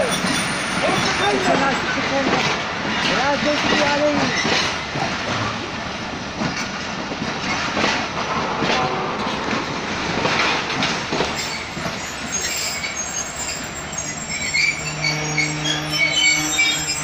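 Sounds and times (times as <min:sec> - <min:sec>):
train wheels clacking on rail joints: 0:00.0 - 0:17.0
high-pitched wheel squeal: 0:11.4 - 0:17.0.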